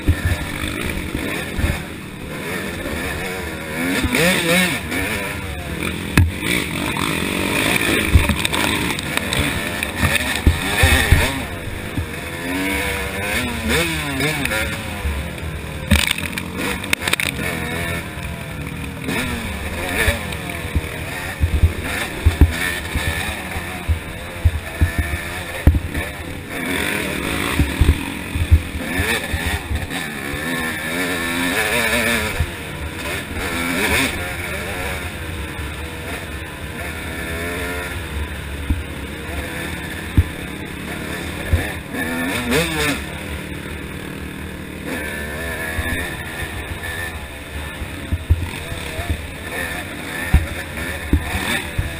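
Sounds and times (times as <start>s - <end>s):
dirt bike engine revving: 0.0s - 51.9s
sharp knocks: 8.0s - 11.3s, 20.8s - 23.2s, 23.8s - 26.1s.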